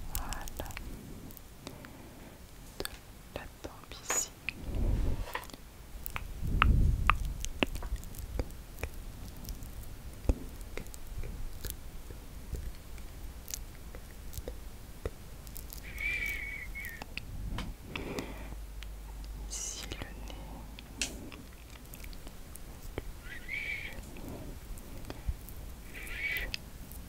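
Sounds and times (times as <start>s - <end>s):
brush dabbing sticky face mask: 7.1s - 17.2s.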